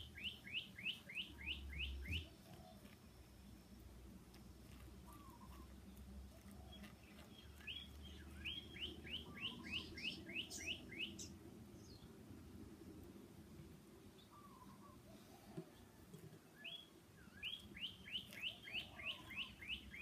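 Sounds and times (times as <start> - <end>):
songbird whistling: 0.0 - 2.3, 7.4 - 11.3, 16.5 - 20.0.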